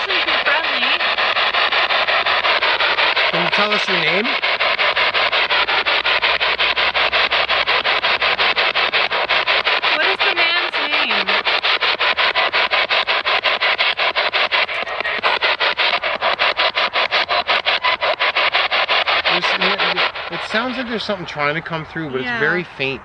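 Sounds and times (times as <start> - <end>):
pulsing radio static: 0.0 - 23.0
radio voice: 14.7 - 15.4, 21.9 - 22.8.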